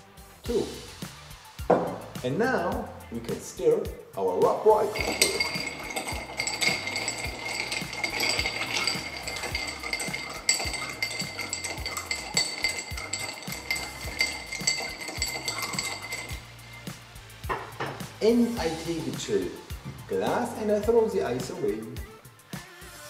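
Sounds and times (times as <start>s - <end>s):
spoon stirring ice in glass: 4.8s - 17.0s
glassy ring: 4.8s - 18.6s.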